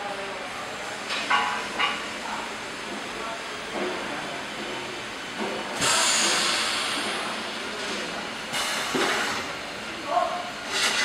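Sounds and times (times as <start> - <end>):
welding machine noise: 4.9 - 11.0.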